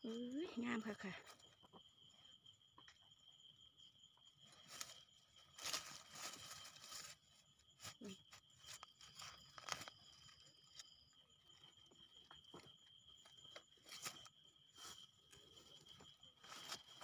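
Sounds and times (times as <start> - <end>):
high insect trill: 0.0 - 17.0.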